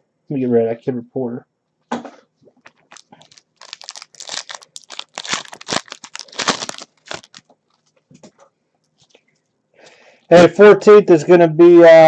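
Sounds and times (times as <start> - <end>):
foil wrapper crinkling: 2.6 - 8.0.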